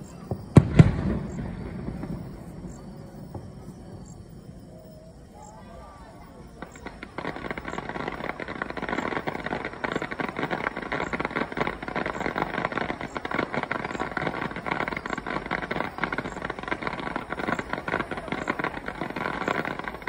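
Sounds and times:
fireworks crackling and banging: 0.0s - 4.7s, 5.6s - 20.0s.

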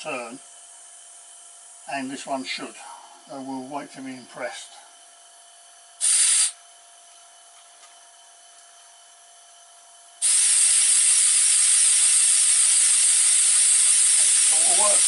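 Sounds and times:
compressed air hissing: 6.0s - 6.6s, 10.2s - 15.0s.

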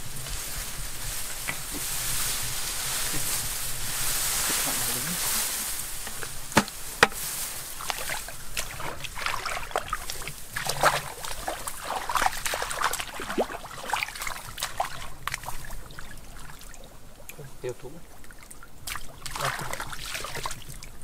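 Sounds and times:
mud squelching: 0.0s - 21.0s
splashing in muddy water: 1.2s - 21.0s
sharp knocks: 6.0s - 7.2s.

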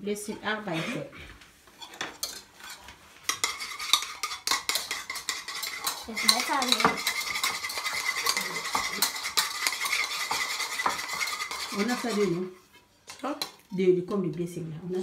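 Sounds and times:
whisk beating egg in bowl: 1.8s - 12.5s.

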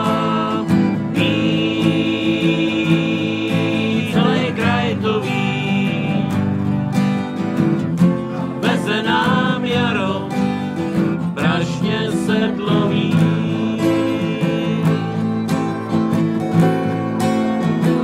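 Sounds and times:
voices singing: 0.0s - 16.0s
acoustic guitar strumming: 0.0s - 18.0s.

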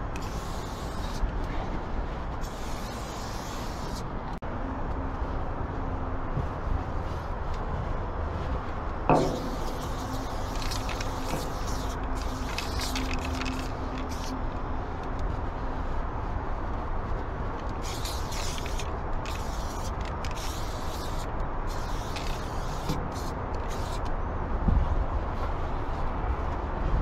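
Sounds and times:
spray paint can hissing: 0.2s - 1.2s, 2.4s - 4.1s, 9.1s - 14.4s, 17.8s - 24.1s.

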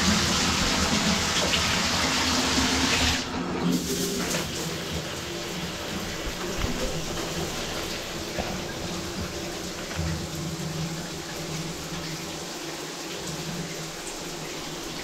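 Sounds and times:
faucet running into tub: 0.0s - 15.0s
water trickling and dripping: 4.3s - 15.0s.

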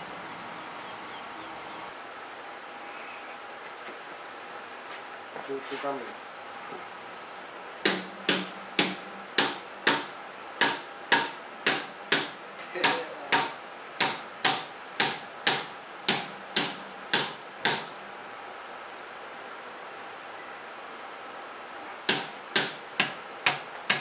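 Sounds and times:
hammer striking metal: 7.9s - 17.9s.

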